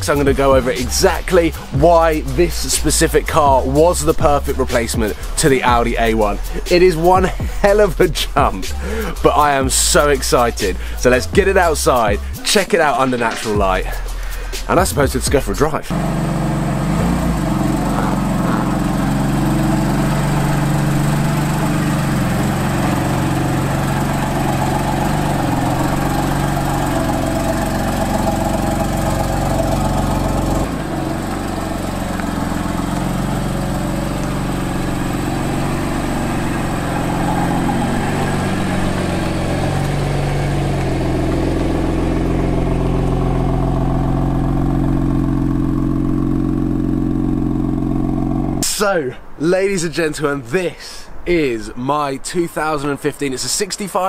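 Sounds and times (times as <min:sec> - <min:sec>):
car engine idling: 0:00.0 - 0:48.8.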